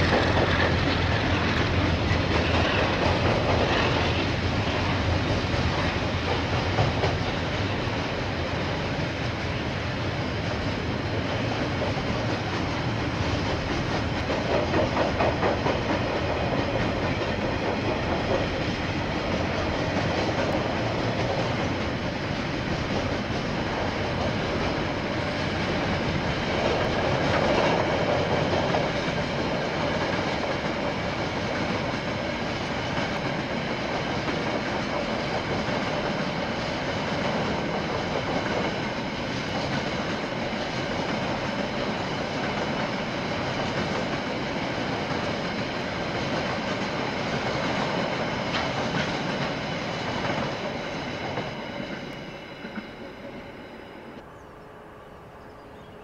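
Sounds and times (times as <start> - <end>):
freight train wagons rolling: 0.0 - 53.4.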